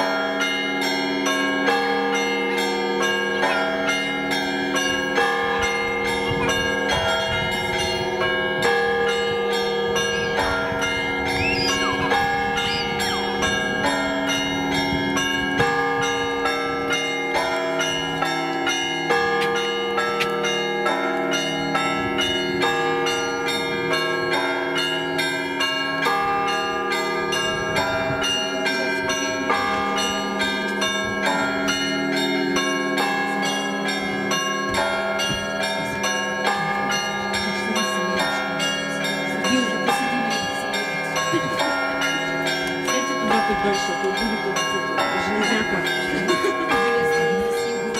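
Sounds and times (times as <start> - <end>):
church bells pealing: 0.0 - 47.9.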